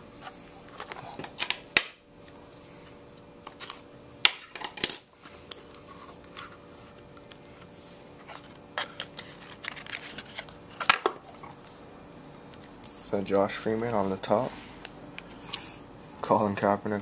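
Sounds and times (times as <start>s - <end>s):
faint steady hum: 0.0s - 17.0s
cards rustling and scraping: 0.2s - 1.6s, 2.2s - 15.9s.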